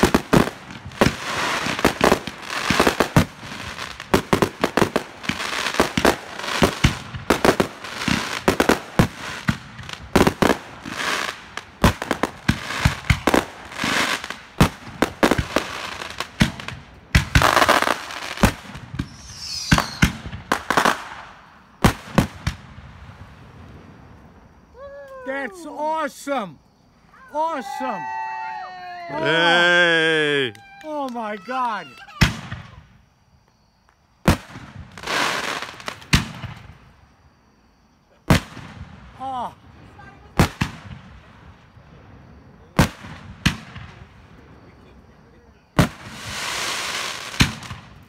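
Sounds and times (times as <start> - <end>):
fireworks crackling: 0.0 - 26.5, 27.1 - 33.1, 33.8 - 37.2, 38.2 - 48.0
falling whistle: 19.0 - 20.0.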